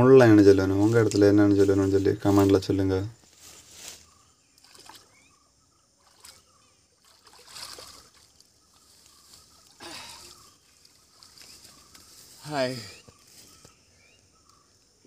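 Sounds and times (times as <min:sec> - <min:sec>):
water splashing and sloshing: 0:04.6 - 0:05.3, 0:06.0 - 0:12.2.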